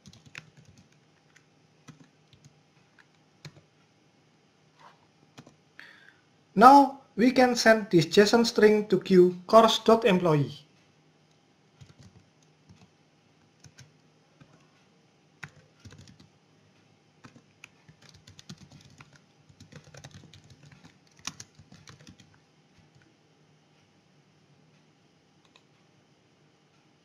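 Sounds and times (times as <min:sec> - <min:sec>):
typing on computer keyboard: 0:00.0 - 0:03.7, 0:05.4 - 0:05.6, 0:11.8 - 0:12.9, 0:13.5 - 0:14.7, 0:15.4 - 0:16.3, 0:17.2 - 0:23.0
faint low hum: 0:00.0 - 0:27.0.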